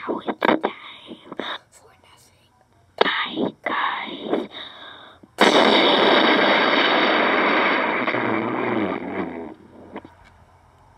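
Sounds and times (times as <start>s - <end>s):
distorted breath into toy microphone: 3.0s - 10.1s.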